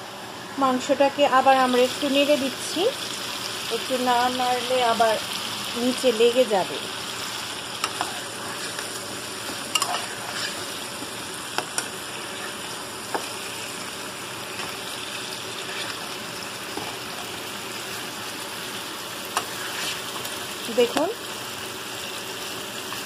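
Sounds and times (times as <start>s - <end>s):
chicken sizzling in oil: 1.4s - 23.0s
spatula stirring in pan: 7.7s - 21.1s.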